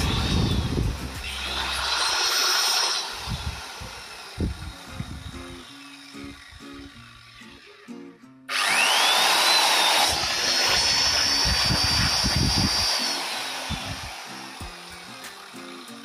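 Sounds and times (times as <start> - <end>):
circular saw motor whining: 0.0 - 16.0.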